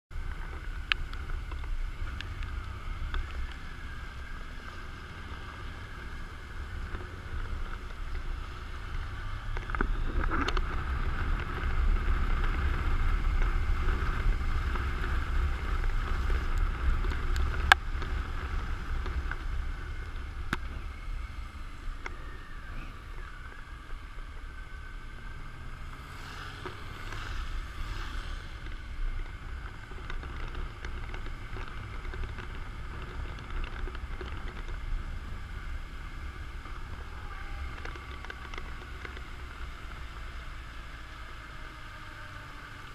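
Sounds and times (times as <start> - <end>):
motorcycle and tyre noise: 0.1 - 42.9
wind rumble on microphone: 0.1 - 42.9.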